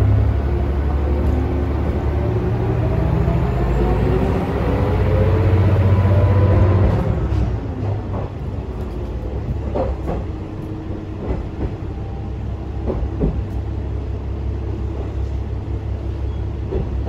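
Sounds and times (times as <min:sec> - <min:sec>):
diesel railcar engine rumble: 0:00.0 - 0:17.0
train wheels clacking on joints: 0:06.5 - 0:12.0, 0:12.8 - 0:13.6, 0:16.6 - 0:17.0.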